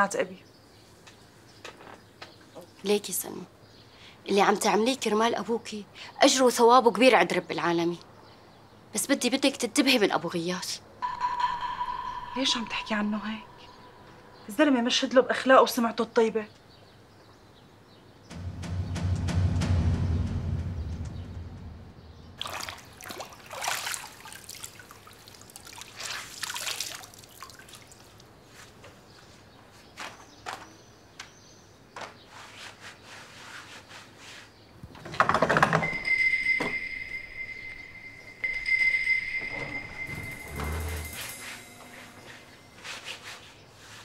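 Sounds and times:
steady high-pitched tone: 11.0 - 14.4, 35.9 - 42.8
short splashes: 22.4 - 28.2
water pouring and trickling: 22.4 - 28.4
clinks: 35.5 - 42.6.

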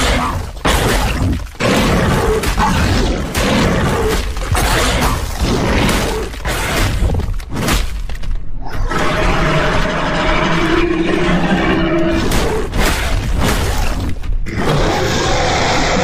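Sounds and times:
harsh creature roars: 8.6 - 12.7, 14.5 - 16.0.

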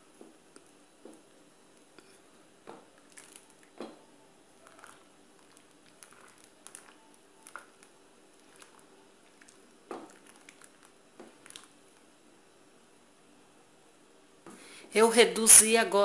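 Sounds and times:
spoon squelching and scraping: 3.0 - 3.8, 4.6 - 11.8.

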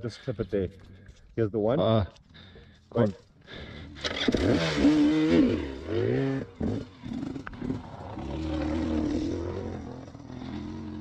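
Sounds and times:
dirt bike engine revving: 4.0 - 11.0.

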